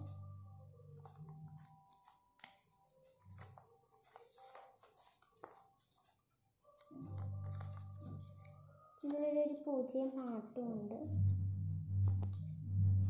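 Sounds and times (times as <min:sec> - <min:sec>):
paper rustling and crinkling: 0:01.0 - 0:10.9.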